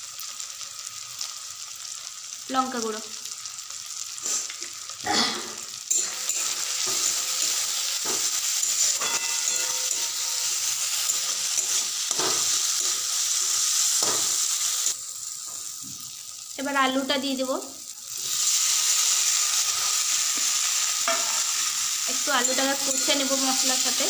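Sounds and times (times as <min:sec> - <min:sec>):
food sizzling in hot oil: 0:00.0 - 0:24.0
spatula scraping pan: 0:05.9 - 0:14.9.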